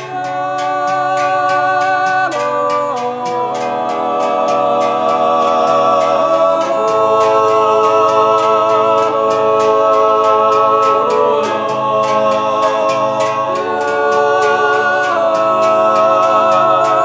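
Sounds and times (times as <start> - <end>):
light percussive beat: 0.0 - 17.0
music with long held notes: 0.0 - 17.0.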